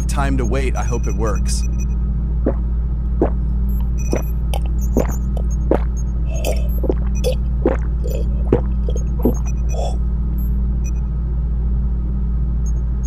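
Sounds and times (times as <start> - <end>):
low hum: 0.0 - 13.0
soft rhythmic thumps: 2.5 - 10.0
bubbly squelches: 3.2 - 10.0.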